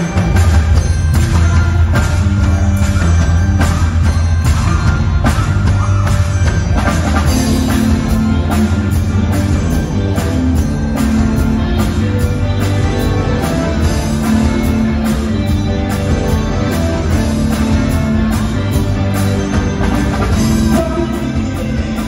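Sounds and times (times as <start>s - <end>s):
drum kit beat: 0.0s - 22.0s
electric guitar: 0.0s - 22.0s
heavy bass line: 0.0s - 22.0s.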